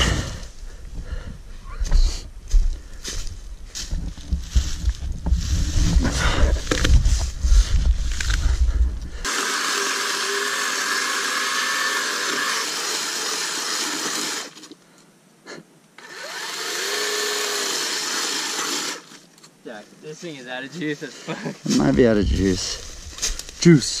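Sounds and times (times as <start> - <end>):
rustling in dry leaves: 2.5 - 8.8, 20.9 - 24.0
chainsaw cutting log: 9.2 - 14.7, 16.0 - 19.2.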